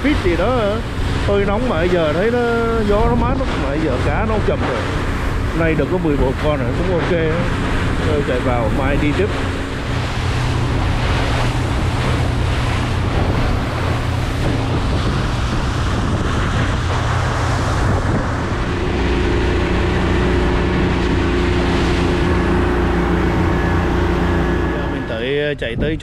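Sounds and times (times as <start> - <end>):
outboard motor running: 0.0 - 26.0
rushing wake and spray: 0.0 - 26.0
wind buffeting microphone: 0.0 - 26.0.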